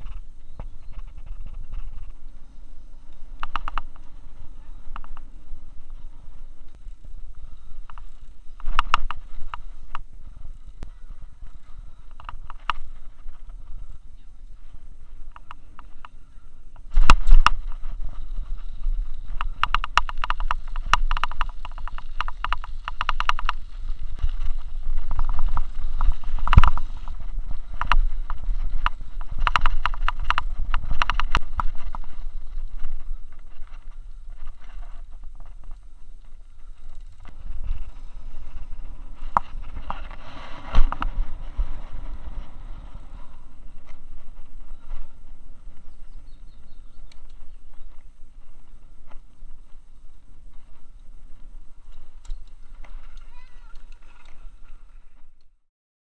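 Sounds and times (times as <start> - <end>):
camera rattling and clattering: 0.0 - 2.2, 3.4 - 4.3, 7.8 - 10.8, 12.1 - 13.6, 16.8 - 35.8, 36.8 - 42.4
low rumble of wheels: 0.0 - 55.6.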